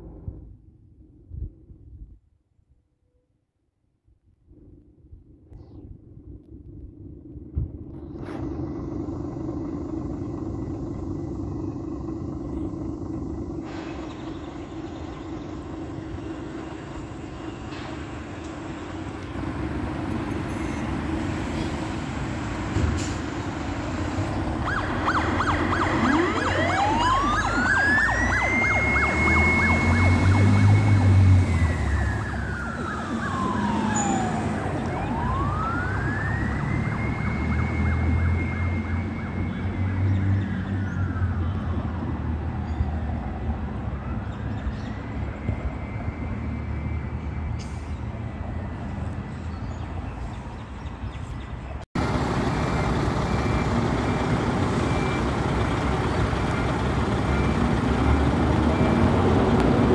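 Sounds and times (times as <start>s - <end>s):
siren pulsing and wailing: 5.2s - 50.0s, 52.0s - 59.9s
diesel engine running: 6.1s - 40.0s, 52.0s - 59.9s.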